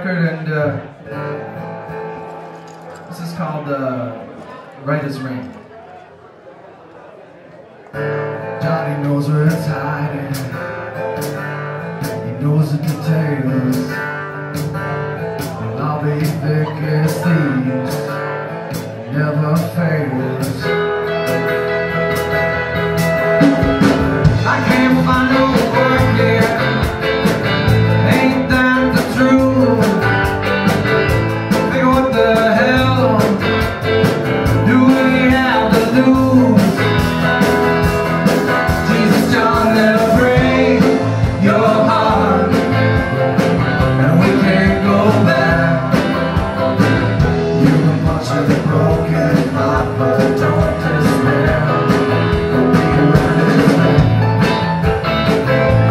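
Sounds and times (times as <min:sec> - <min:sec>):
live country-rock band playing: 0:00.0 - 0:05.7, 0:07.9 - 0:55.9
steady drum beat: 0:22.1 - 0:55.9.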